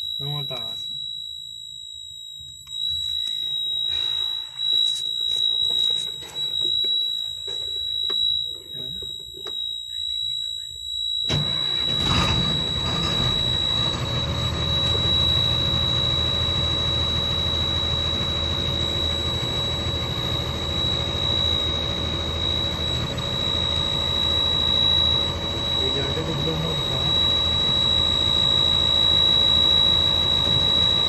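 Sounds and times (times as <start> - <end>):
steady high-pitched tone: 0.0 - 31.0
diesel engine starting and running: 11.3 - 31.0.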